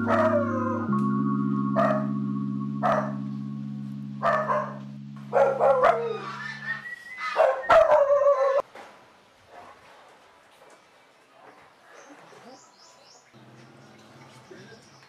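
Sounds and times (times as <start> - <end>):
dog barking: 0.0 - 0.8, 1.8 - 2.1, 2.8 - 3.2, 4.2 - 6.6, 7.2 - 8.6
low music chord: 0.0 - 6.9.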